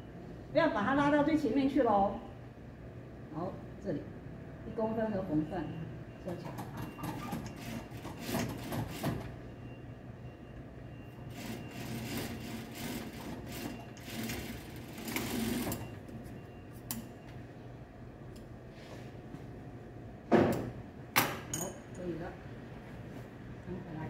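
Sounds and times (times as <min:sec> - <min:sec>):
sewing machine motor humming: 0:11.3 - 0:15.8.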